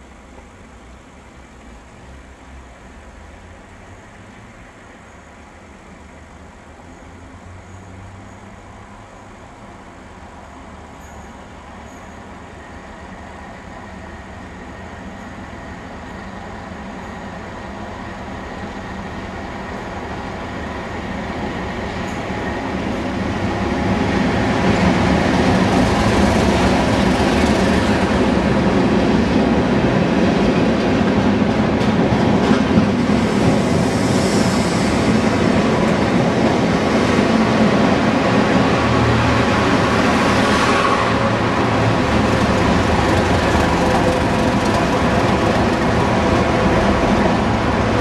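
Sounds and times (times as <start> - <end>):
diesel locomotive passing: 0.0 - 48.0
train wheel noise: 10.7 - 48.0.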